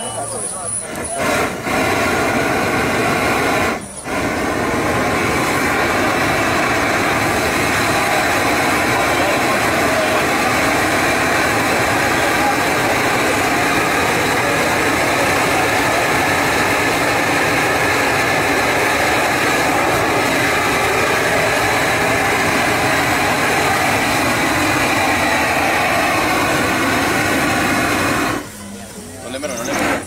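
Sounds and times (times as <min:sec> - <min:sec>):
gas burner rushing: 0:00.0 - 0:30.0.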